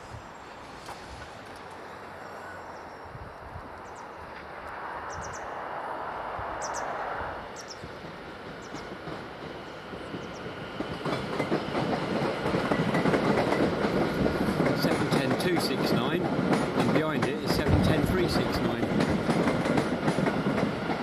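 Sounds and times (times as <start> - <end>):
wheels clicking over rail joints: 8.0 - 21.0.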